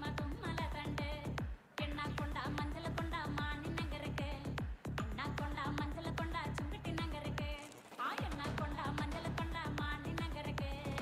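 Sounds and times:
deep kick drums: 0.0 - 7.6, 8.2 - 11.0
electronic dance music: 0.0 - 11.0.

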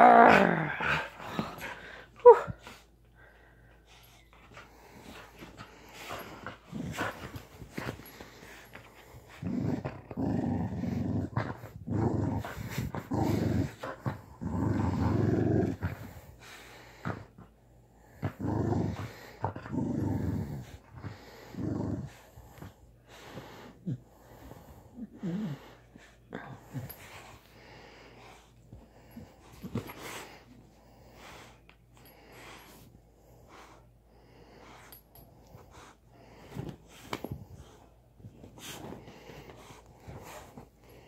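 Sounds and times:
dog growling playfully: 0.0 - 2.5, 4.8 - 16.3, 18.0 - 22.8.

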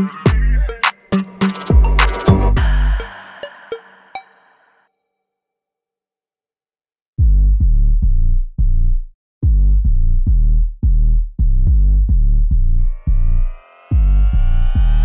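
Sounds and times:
electronic music with deep bass: 0.0 - 4.3, 9.4 - 15.0.

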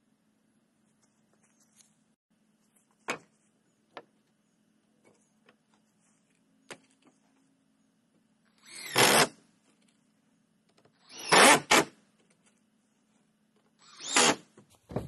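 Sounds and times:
cordless drill driving screws: 8.6 - 9.4, 11.0 - 11.9, 13.8 - 14.5.

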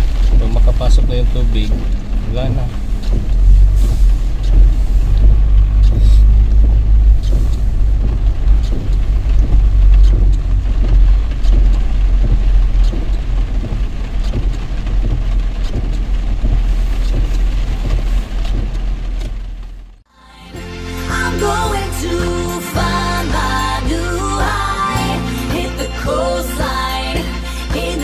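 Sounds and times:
rain tapping on car: 0.0 - 20.0
engine and tyres rumbling: 0.0 - 20.1.

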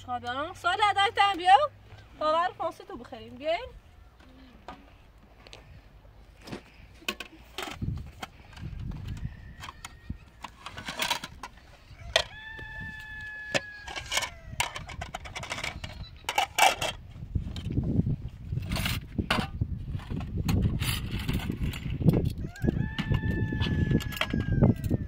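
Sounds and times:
rooster crowing: 9.2 - 10.7, 11.9 - 14.9, 22.4 - 25.0.

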